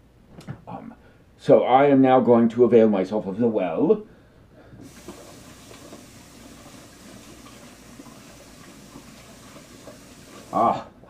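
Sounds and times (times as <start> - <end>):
water running over hands: 4.8 - 10.8.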